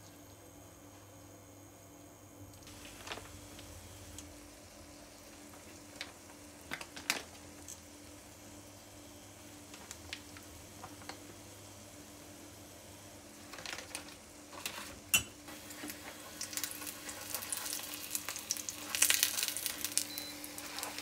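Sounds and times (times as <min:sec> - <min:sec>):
oil popping and crackling: 0:02.7 - 0:08.2, 0:09.7 - 0:11.2, 0:13.3 - 0:21.0
batter sizzling in oil: 0:02.7 - 0:21.0.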